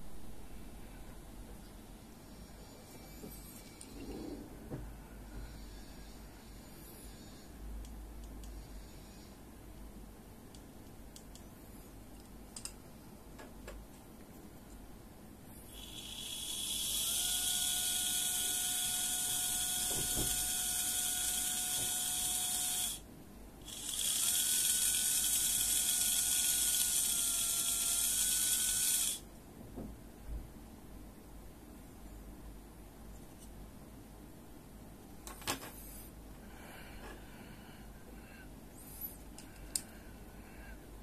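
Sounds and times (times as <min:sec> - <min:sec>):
electric motor whine with brush hiss: 0:15.7 - 0:23.0, 0:23.7 - 0:29.2.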